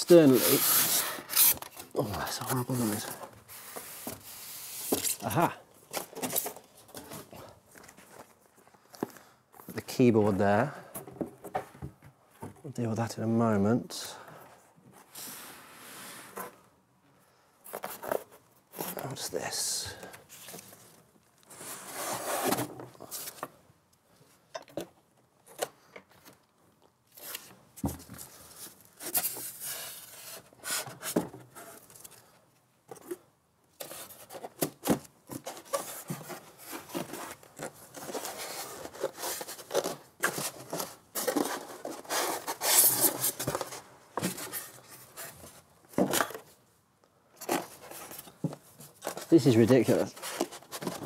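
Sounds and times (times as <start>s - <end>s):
foam scraping against cardboard: 0.1s - 1.6s, 21.5s - 22.7s.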